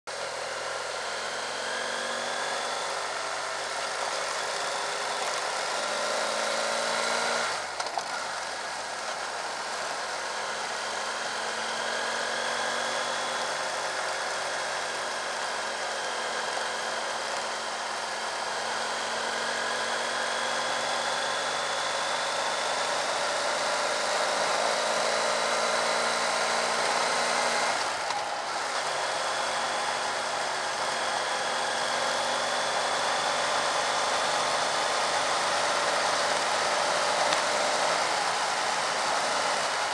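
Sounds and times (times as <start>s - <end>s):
motorcycle engine running: 0.1s - 39.9s
tyres on gravel: 7.6s - 9.8s, 32.9s - 39.9s.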